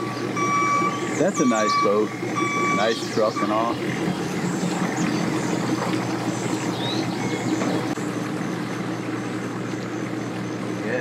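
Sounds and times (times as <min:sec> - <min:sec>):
bird chirp: 0:00.0 - 0:08.0
truck engine idling: 0:00.0 - 0:11.0.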